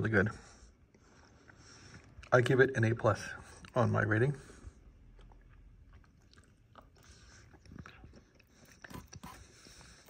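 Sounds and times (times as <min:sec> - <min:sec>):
person chewing: 0:04.8 - 0:10.0.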